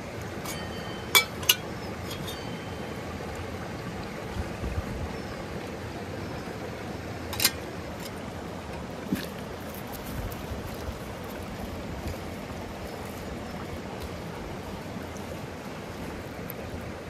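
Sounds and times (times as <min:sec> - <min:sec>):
river flowing over stones: 0:00.0 - 0:17.0.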